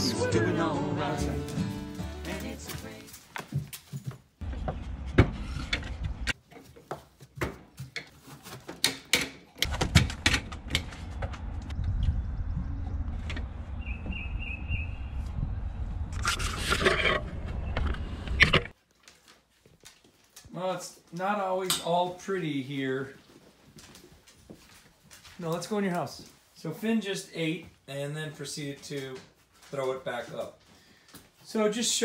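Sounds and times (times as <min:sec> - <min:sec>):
wind rumble on microphone: 0:10.8 - 0:18.4.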